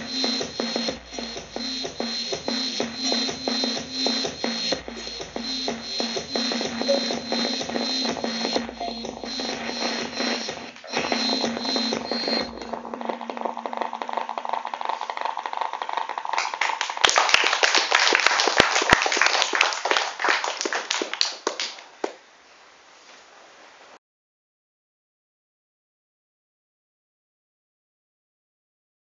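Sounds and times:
music with held tone: 0:00.0 - 0:13.5
audience clapping: 0:14.7 - 0:22.2.

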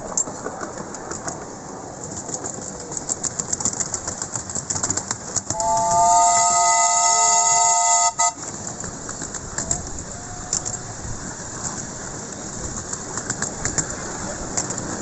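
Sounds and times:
miniature train running: 0:00.0 - 0:15.0
steam locomotive whistle: 0:05.5 - 0:08.5.

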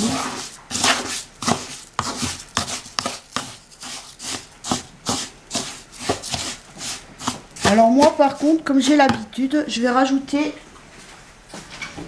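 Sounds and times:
wooden spoon scraping in a bowl: 0:00.0 - 0:09.3.

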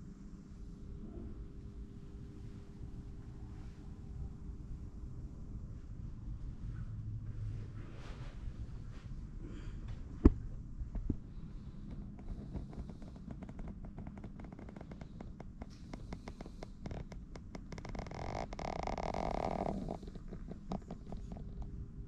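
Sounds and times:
low rumble of handling noise: 0:00.0 - 0:22.0.

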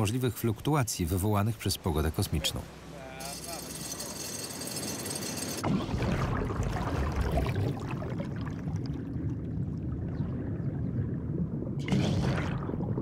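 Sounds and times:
underwater bubbling and rumble: 0:05.6 - 0:13.0.

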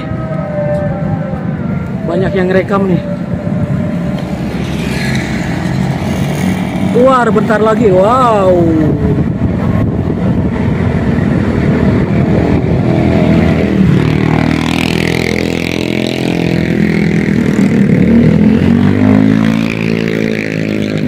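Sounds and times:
electric train passing: 0:02.8 - 0:07.4.

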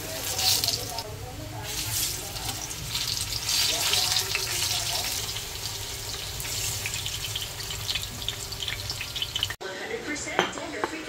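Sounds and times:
bananas sizzling in oil: 0:00.0 - 0:09.6.

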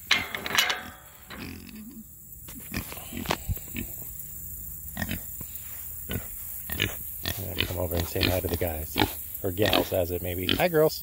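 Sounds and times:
gate latch metal clatter: 0:00.0 - 0:01.5
pigs grunting: 0:06.1 - 0:10.9.

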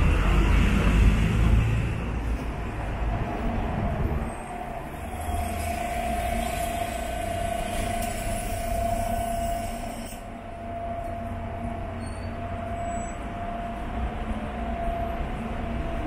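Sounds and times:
steady whining tone: 0:03.8 - 0:16.0.

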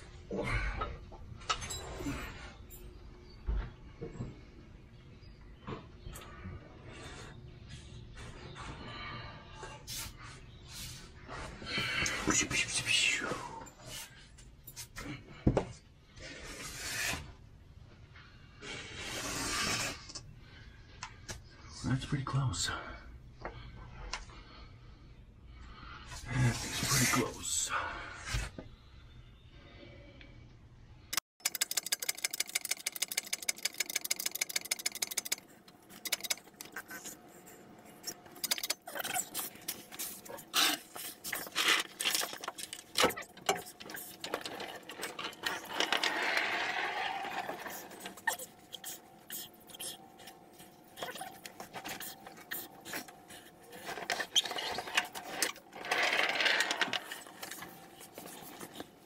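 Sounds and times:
rapid run of clicks: 0:31.4 - 0:36.8.

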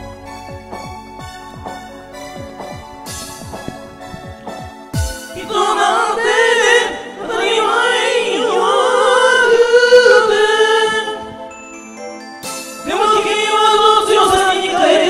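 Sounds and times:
pop backing track: 0:00.0 - 0:15.0
people singing karaoke: 0:03.1 - 0:11.6, 0:12.4 - 0:15.0.

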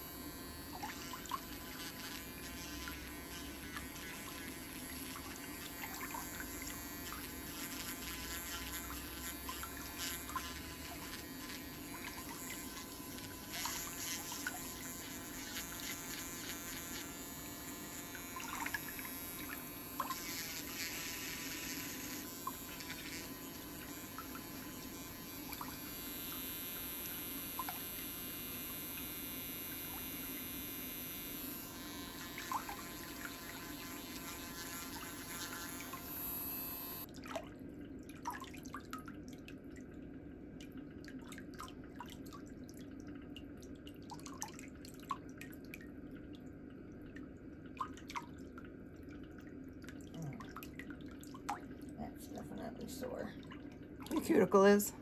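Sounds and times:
electric nail drill running: 0:00.0 - 0:37.1.

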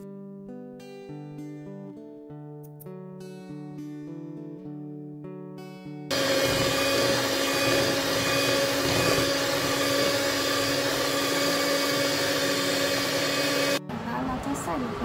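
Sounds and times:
machine motor humming and whirring: 0:06.1 - 0:13.8.

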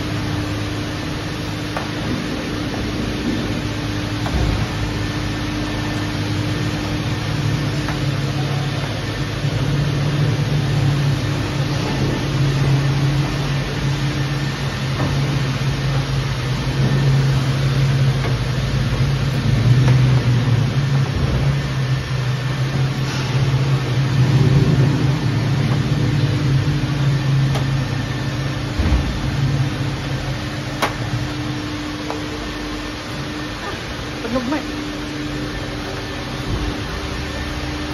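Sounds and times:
car wash equipment hum: 0:00.0 - 0:37.9.

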